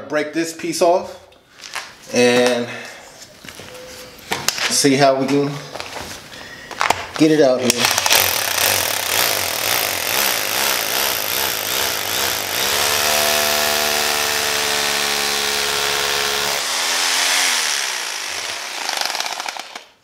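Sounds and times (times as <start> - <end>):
electric drill boring into ball: 7.9 - 19.9.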